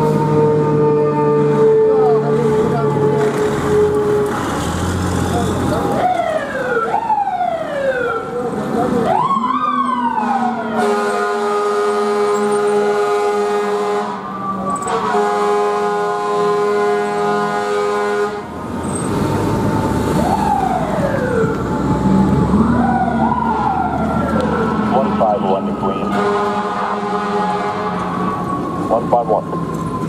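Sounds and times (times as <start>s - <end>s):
truck engine rumbling: 0.0s - 30.0s
siren sweeping up and down: 5.8s - 16.3s, 19.4s - 30.0s
fire truck air horn blasts: 10.1s - 18.6s, 24.9s - 28.4s.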